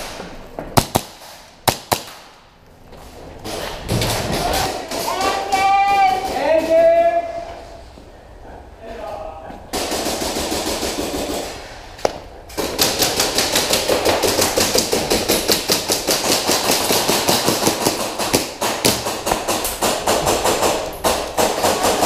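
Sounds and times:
airsoft guns firing bursts: 9.7s - 11.6s, 12.6s - 22.0s.

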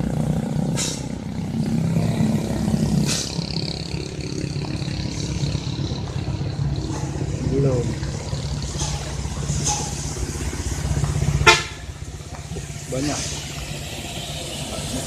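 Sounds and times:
diesel lorry engine under load: 0.0s - 15.0s
brief hisses: 0.8s - 1.0s, 13.1s - 13.5s.

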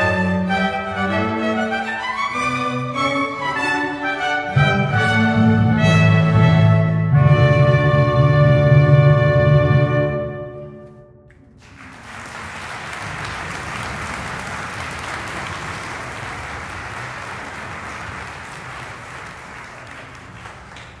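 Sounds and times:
audience applause: 11.4s - 21.0s.

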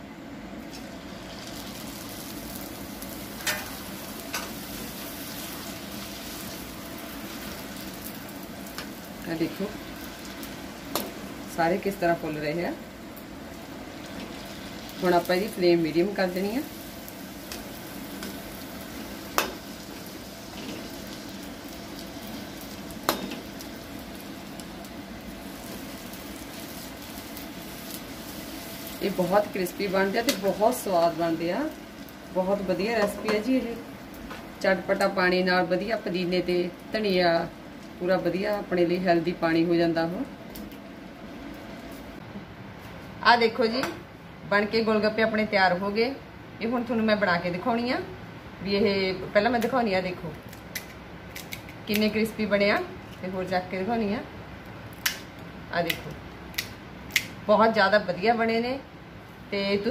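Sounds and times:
dough deep-frying in oil: 0.6s - 42.2s.

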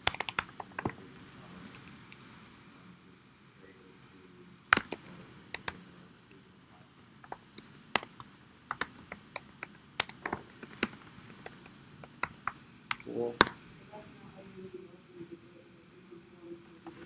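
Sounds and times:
computer keyboard typing: 0.0s - 1.9s, 4.7s - 6.0s, 6.9s - 13.5s, 16.7s - 17.0s.

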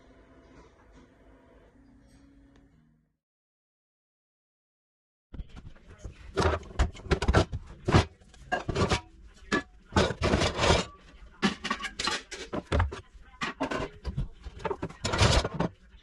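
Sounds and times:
frying pans knocking and clattering: 6.3s - 15.8s
pans scraping against wire rack: 6.3s - 15.8s.

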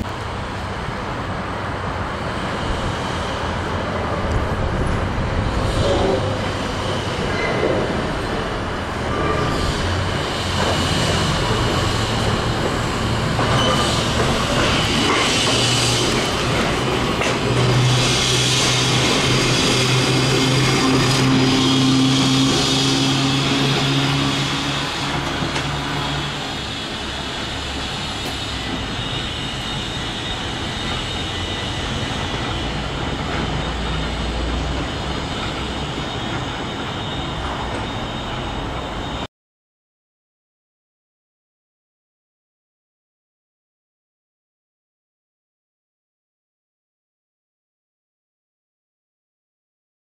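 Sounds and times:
wheel and rail noise: 0.0s - 39.3s.

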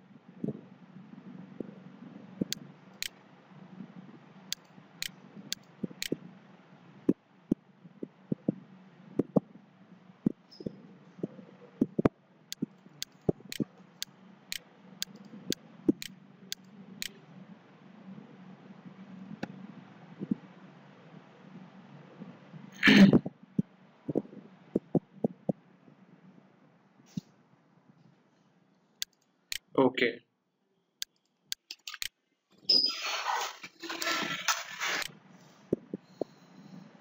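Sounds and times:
faint low hum: 0.0s - 37.0s
computer mouse clicking: 11.8s - 17.2s, 29.0s - 29.7s, 31.0s - 32.1s.

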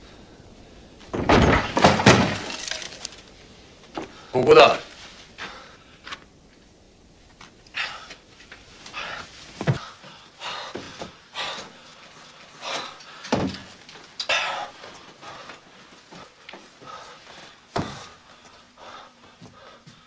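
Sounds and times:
heavy thuds: 0.0s - 4.3s, 8.9s - 11.8s.

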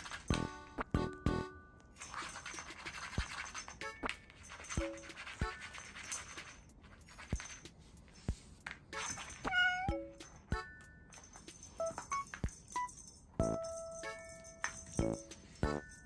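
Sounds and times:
background music: 0.0s - 1.8s, 13.4s - 16.0s
cat meowing: 9.4s - 10.0s.

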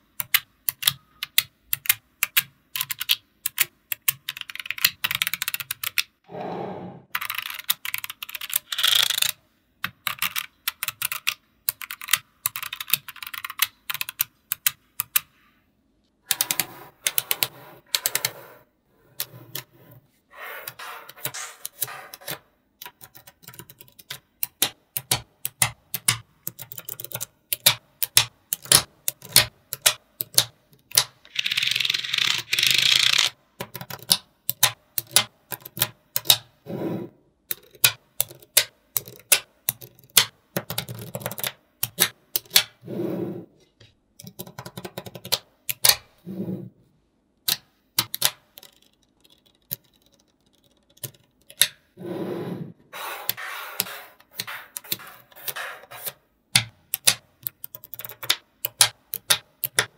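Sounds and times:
magnetic balls clicking together: 37.5s - 42.8s, 56.5s - 59.9s.

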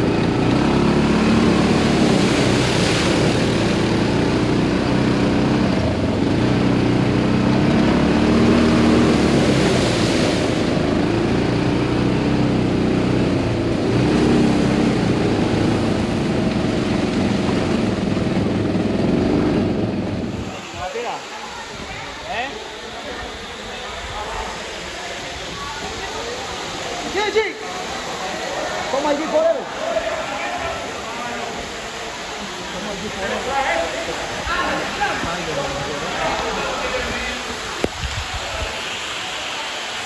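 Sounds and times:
buggy engine running: 0.0s - 20.6s
wind and road noise: 0.0s - 20.9s, 34.2s - 38.8s.

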